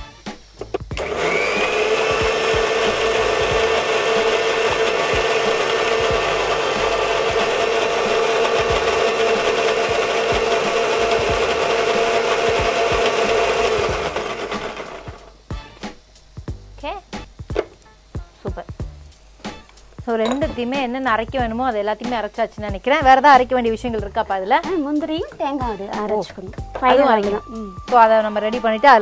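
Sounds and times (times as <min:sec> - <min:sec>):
mixer grinder motor whine: 0:00.7 - 0:15.4
jar knocking on base: 0:20.2 - 0:20.8.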